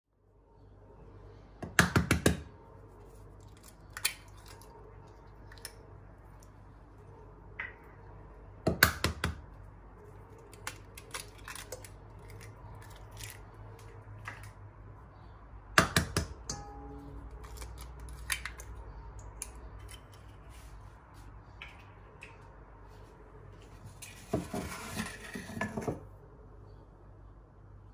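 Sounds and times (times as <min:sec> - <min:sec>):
eggshell crackling: 0:03.0 - 0:08.4, 0:09.4 - 0:15.0
eggs cracking on metal bowl: 0:03.4 - 0:06.5, 0:10.3 - 0:14.8, 0:15.8 - 0:20.3.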